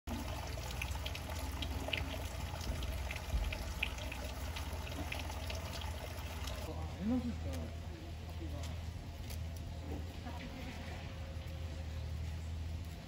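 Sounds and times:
water pouring and splashing: 0.1s - 6.7s.

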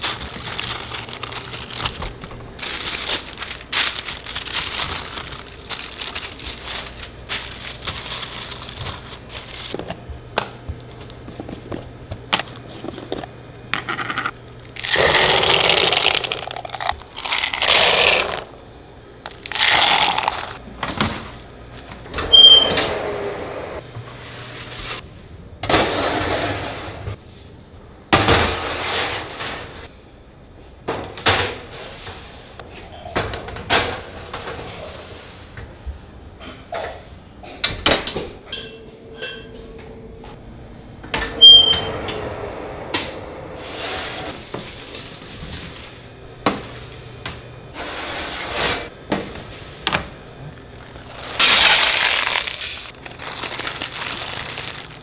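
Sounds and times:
high-pitched oven tones: 22.1s - 23.8s, 41.2s - 43.4s.

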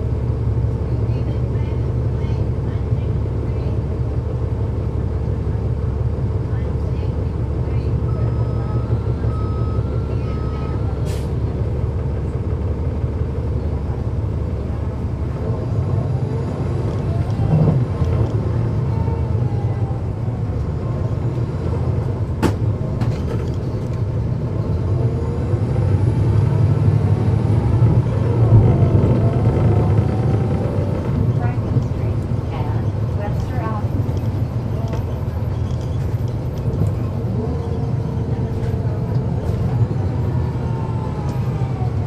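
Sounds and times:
bus diesel engine drone: 0.0s - 42.0s
short beeps: 8.0s - 10.8s.

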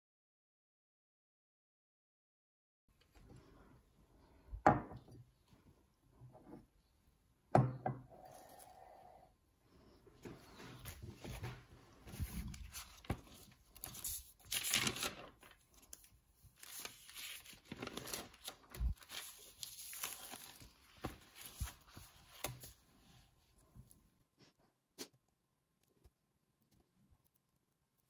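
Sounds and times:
paper pages rustling: 10.2s - 23.2s.

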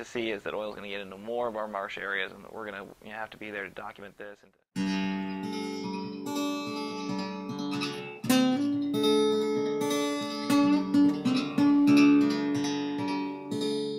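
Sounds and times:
acoustic guitar music: 4.8s - 13.9s.

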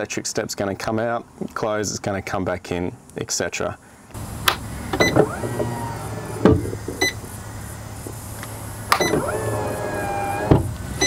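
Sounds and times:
step closing clunk: 4.4s - 7.2s, 8.4s - 10.8s
motor whining: 4.7s - 11.0s.

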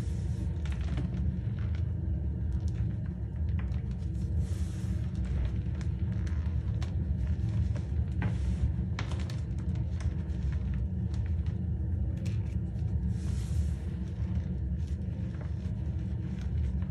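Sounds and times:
steady low rumble: 0.0s - 16.9s.

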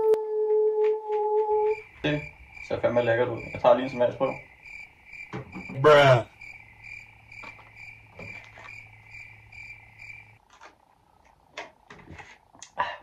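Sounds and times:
crickets chirping: 1.3s - 10.4s.

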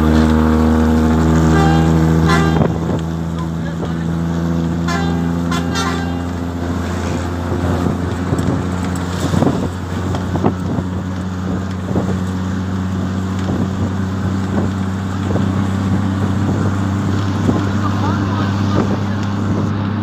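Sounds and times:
vehicle engine drone: 0.0s - 20.0s
wind noise: 6.4s - 20.0s.

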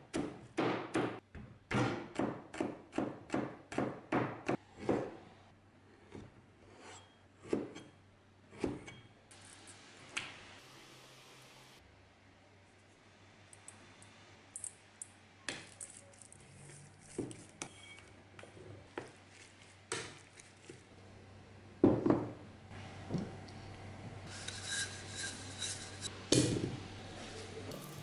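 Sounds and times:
wooden spoon scraping in a bowl: 24.3s - 26.1s.

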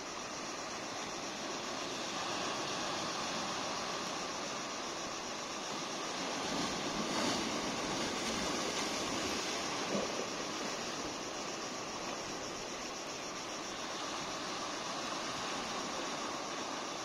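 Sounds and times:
surf breaking against rocks: 5.7s - 11.2s.

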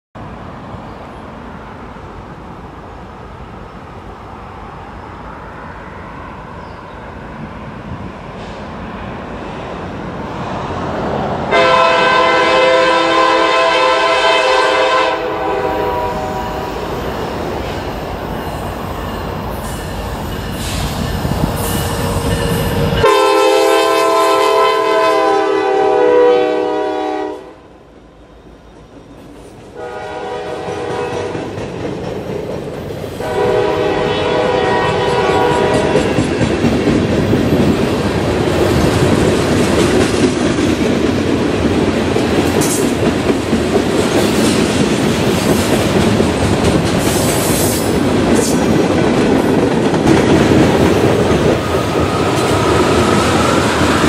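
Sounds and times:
freight train rumble: 0.2s - 54.0s
locomotive air horn blasts: 11.5s - 16.8s, 22.9s - 27.7s, 29.7s - 31.3s, 33.2s - 36.0s.

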